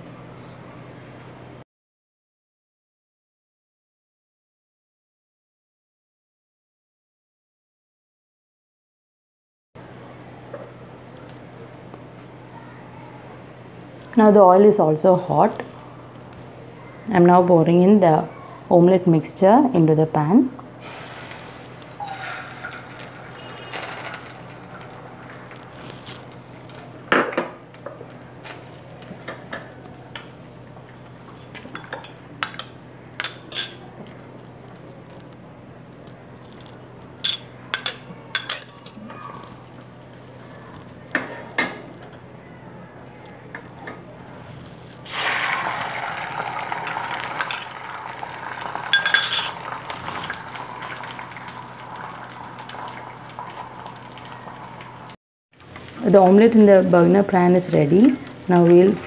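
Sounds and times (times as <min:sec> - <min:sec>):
egg sizzling in hot oil: 0:20.8 - 0:26.6, 0:45.1 - 0:55.0
metal cookware clinking: 0:31.7 - 0:33.9, 0:37.2 - 0:39.0, 0:49.0 - 0:49.6.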